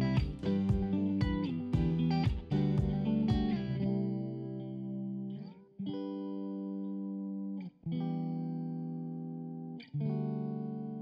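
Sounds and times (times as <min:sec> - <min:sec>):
slow held music chords: 0:00.0 - 0:05.4.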